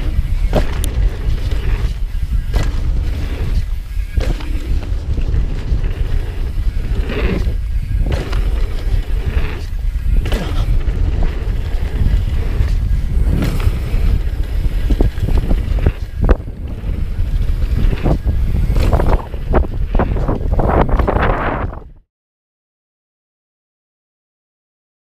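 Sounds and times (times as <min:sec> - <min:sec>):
bike knocks and rattles: 0:00.0 - 0:21.8
tyres rumbling on dirt trail: 0:00.0 - 0:22.0
wind buffeting microphone: 0:00.0 - 0:22.0.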